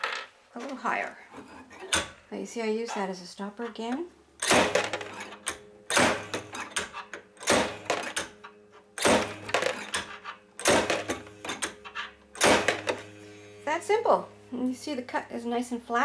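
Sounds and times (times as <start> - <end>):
blades cracking through glass rod: 4.4 - 13.0.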